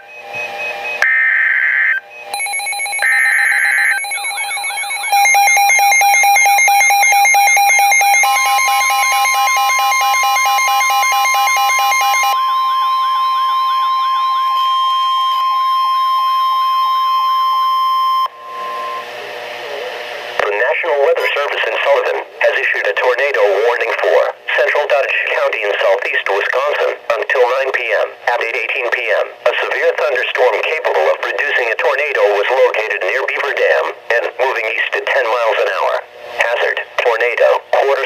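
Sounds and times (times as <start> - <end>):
steady warning tone: 0.0 - 21.5
warbling alarm siren: 0.9 - 19.8
buzzing data bursts: 1.0 - 11.5.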